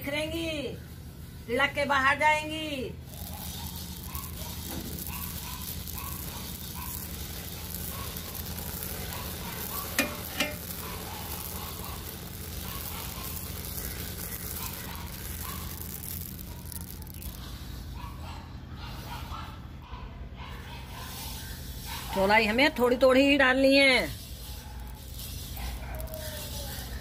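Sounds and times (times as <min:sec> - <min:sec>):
cloth stirring strokes: 0:03.0 - 0:17.6, 0:21.1 - 0:27.0
seeds popping in a wok: 0:03.0 - 0:18.0, 0:20.8 - 0:27.0.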